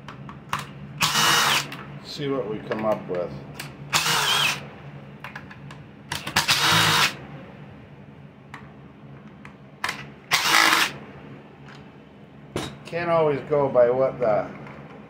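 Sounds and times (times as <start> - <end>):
cordless driver spinning out screws: 1.0 - 1.8, 3.9 - 4.6, 6.1 - 7.2, 9.9 - 11.0.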